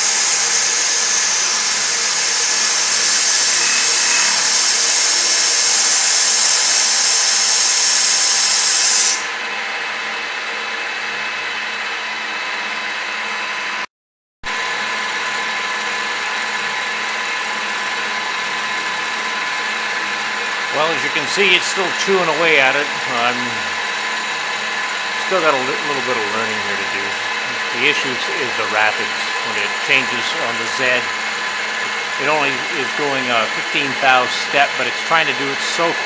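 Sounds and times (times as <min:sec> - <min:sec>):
compressed air hissing: 0:00.0 - 0:09.3
milling machine whirring: 0:00.0 - 0:13.8, 0:14.5 - 0:36.0.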